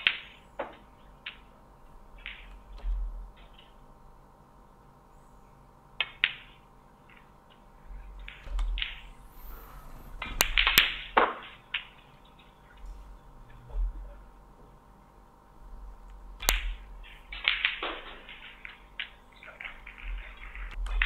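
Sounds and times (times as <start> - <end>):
snooker balls knocking together: 16.4 - 21.0.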